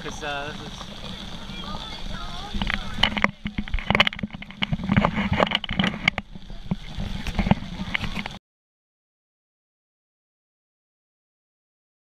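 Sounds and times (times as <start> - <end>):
heavy rain on umbrella: 0.0 - 8.4.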